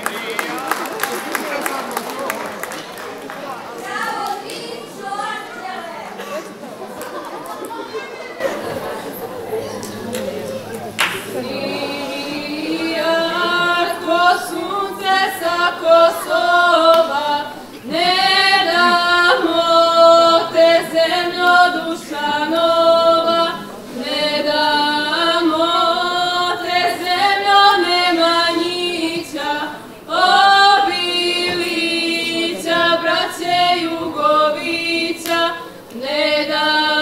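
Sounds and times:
women singing unaccompanied: 0:08.8 - 0:37.0.

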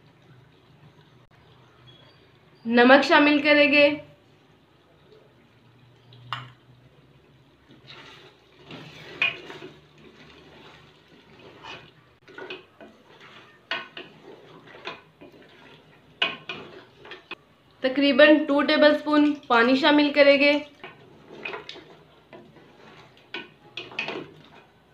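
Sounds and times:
utensil scraping and knocking pot: 0:07.6 - 0:17.4, 0:19.0 - 0:24.8.

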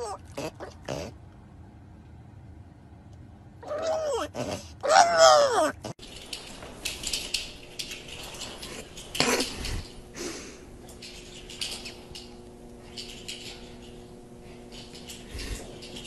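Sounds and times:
dog howling whines: 0:00.0 - 0:00.7, 0:03.6 - 0:05.8.

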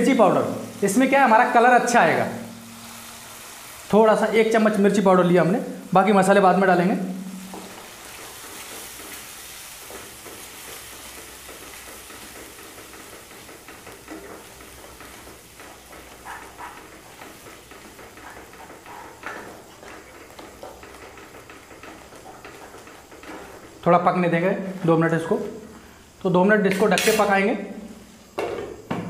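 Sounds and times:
food sizzling in oil: 0:00.0 - 0:28.9
spatula scraping a pan: 0:07.5 - 0:23.8, 0:26.7 - 0:27.3.

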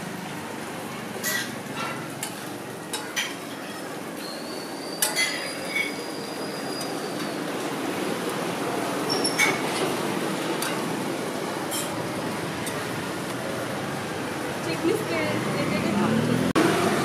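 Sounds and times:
metal utensils clinking: 0:01.2 - 0:07.7, 0:09.1 - 0:10.9, 0:11.6 - 0:13.0.

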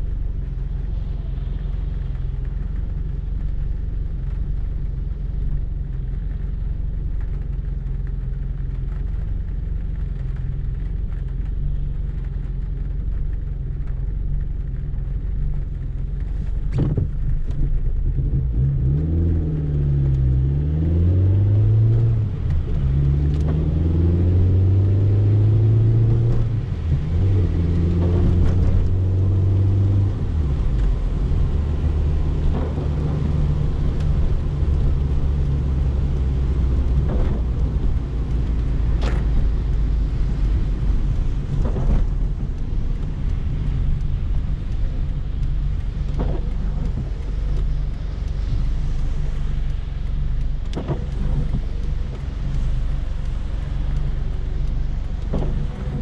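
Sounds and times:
car engine idling and accelerating: 0:00.0 - 0:56.0.

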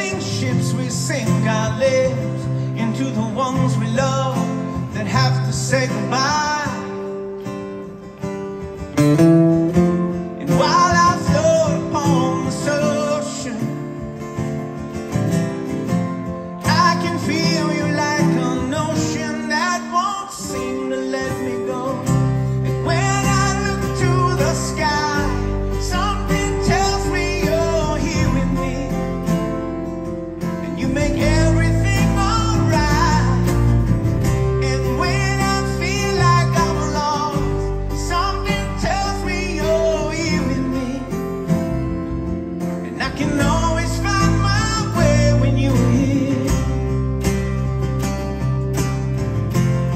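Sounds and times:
man singing: 0:00.0 - 0:07.4, 0:10.3 - 0:14.2, 0:16.5 - 0:29.8, 0:30.5 - 0:47.2
strummed acoustic guitars: 0:00.0 - 0:49.9
electric bass: 0:20.7 - 0:49.9.

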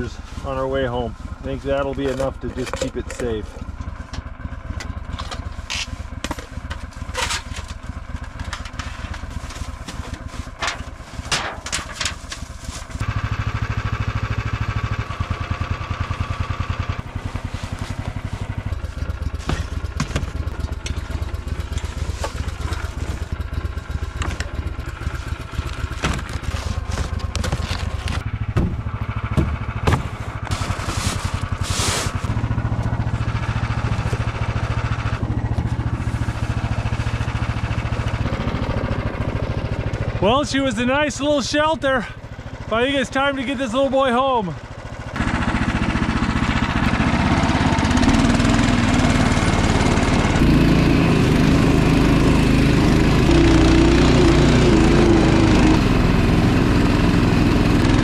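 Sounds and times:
small engine idling: 0:00.0 - 0:58.0
camping gear knocking and scraping: 0:01.8 - 0:13.0, 0:17.0 - 0:36.8.

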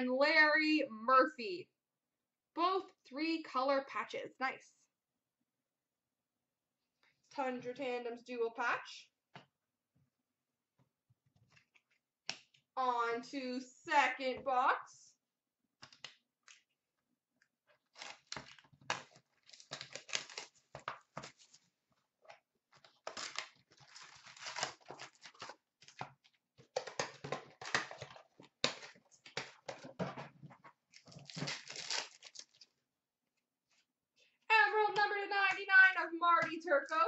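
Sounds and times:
cardboard and wrapping tearing: 0:17.8 - 0:21.6, 0:22.8 - 0:26.0, 0:30.9 - 0:32.7
foil packs rustling: 0:23.1 - 0:25.6, 0:31.0 - 0:32.7.

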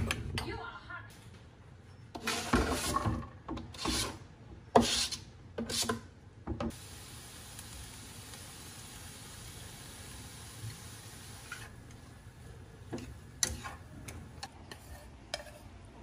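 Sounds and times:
spatula scraping frying pan: 0:02.2 - 0:04.2, 0:04.8 - 0:06.0, 0:12.9 - 0:16.0
vegetables frying hiss: 0:06.7 - 0:14.5.

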